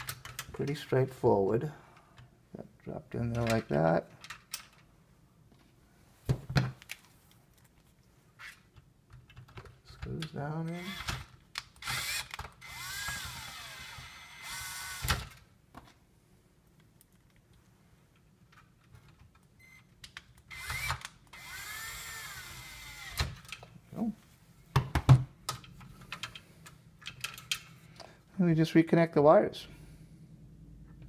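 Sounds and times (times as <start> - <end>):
drill motor whine: 11.8 - 15.2, 20.5 - 23.2.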